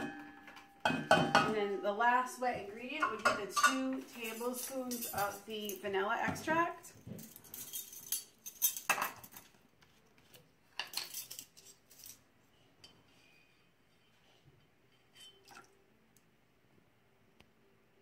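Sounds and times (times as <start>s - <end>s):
metal spoons clinking and jangling: 3.6s - 5.9s, 7.2s - 9.5s, 10.8s - 12.2s.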